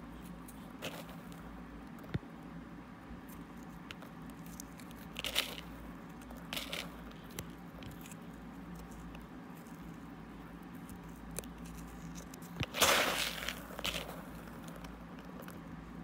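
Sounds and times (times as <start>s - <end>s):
crystals crackling under fingertip: 3.2s - 15.7s
short crunches: 10.8s - 15.7s.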